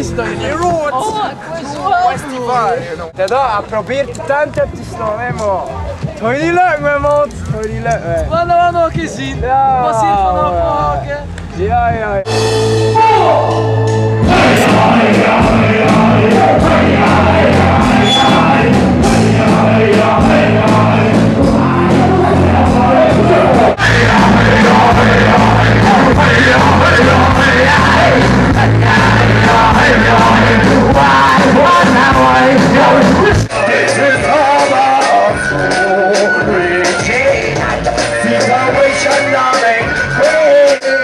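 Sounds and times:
live reggae hip hop band: 3.5s - 41.0s
vocals on microphones: 12.8s - 41.0s.

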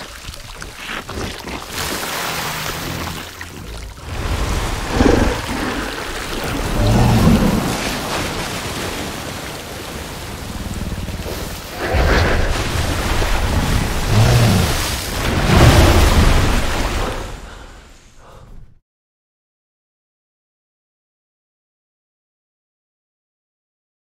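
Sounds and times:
water sloshing and splashing: 0.0s - 17.8s
deep rumbling: 3.1s - 9.0s, 10.0s - 17.6s.

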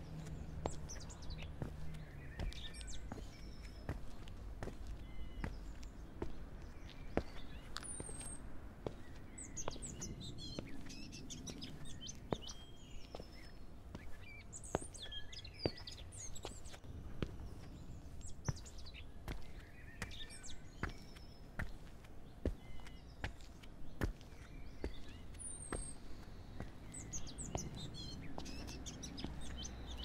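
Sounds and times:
footsteps: 0.0s - 9.8s
songbirds chirping: 0.0s - 30.0s.

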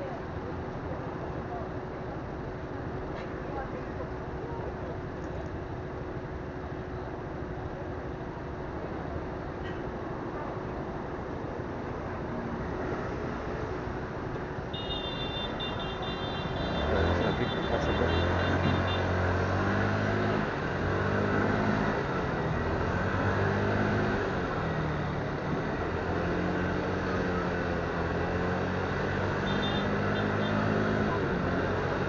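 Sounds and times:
motorcycle engine revving: 16.4s - 32.0s.

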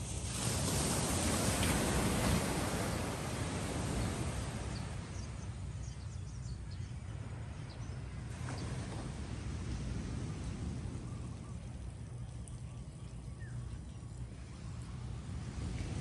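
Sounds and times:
small waves washing up beach: 0.0s - 5.9s, 7.0s - 16.0s.

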